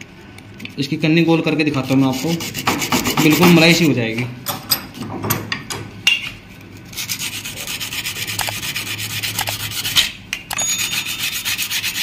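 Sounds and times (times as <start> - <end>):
sandpaper rubbing on sheet metal: 1.8 - 4.0, 6.9 - 10.1, 10.8 - 12.0.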